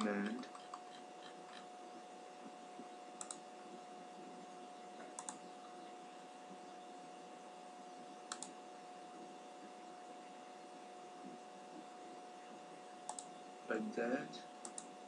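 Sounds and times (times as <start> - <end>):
computer mouse clicking: 0.0 - 1.7, 3.2 - 3.4, 5.0 - 5.4, 8.3 - 8.6, 13.0 - 13.3, 14.6 - 14.9
faint steady hum and hiss: 0.0 - 15.0.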